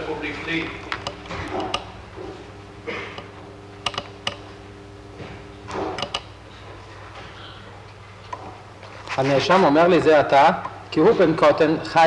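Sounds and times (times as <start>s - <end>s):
steady low hum: 0.0s - 12.0s
sharp clicks: 3.2s - 4.5s, 5.9s - 6.3s.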